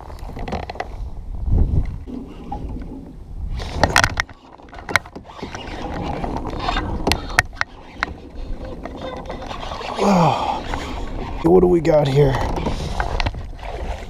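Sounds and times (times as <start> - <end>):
fishing reel being cranked: 3.5 - 14.0.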